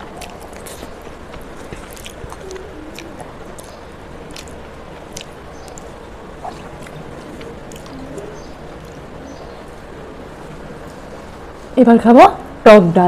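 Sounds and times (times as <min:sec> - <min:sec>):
fingers mixing rice on steel plate: 0:00.0 - 0:09.9
mouth chewing: 0:00.0 - 0:11.2.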